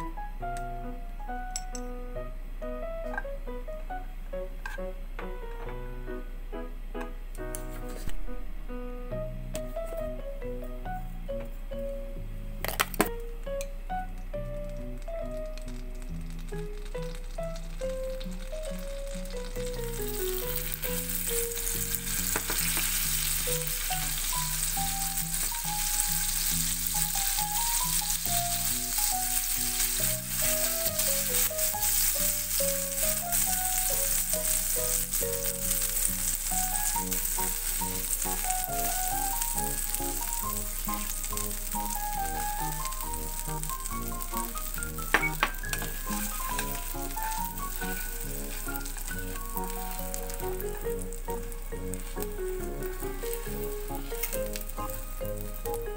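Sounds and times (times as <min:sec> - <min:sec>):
plucked melody music: 0:00.0 - 0:55.9
food sizzling in butter: 0:14.8 - 0:55.9.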